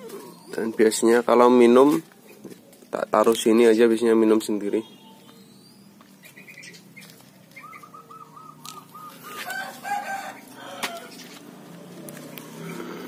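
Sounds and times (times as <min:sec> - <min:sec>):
heron chicks calling: 0:04.9 - 0:11.5.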